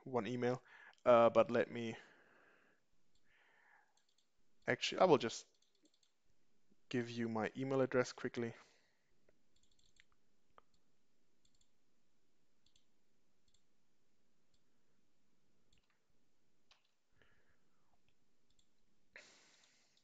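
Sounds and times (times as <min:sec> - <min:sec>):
computer keyboard clicks: 0:09.6 - 0:10.2.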